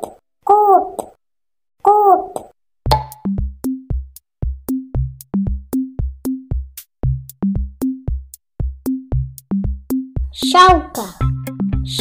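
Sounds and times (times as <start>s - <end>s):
upbeat electronic music: 8.9s - 12.0s.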